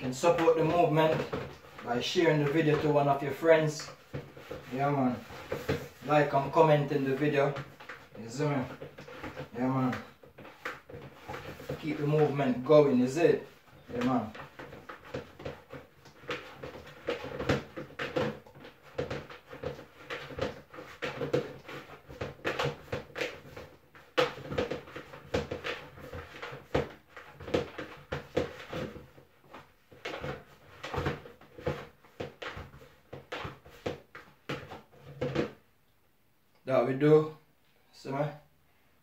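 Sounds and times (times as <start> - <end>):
knocks and thumps: 0.0 - 35.6
dough kneaded by hand: 0.0 - 35.8.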